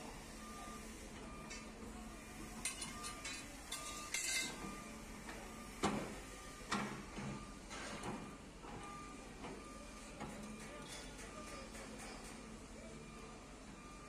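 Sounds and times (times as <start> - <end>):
metallic clinks and scrapes: 2.6 - 4.6.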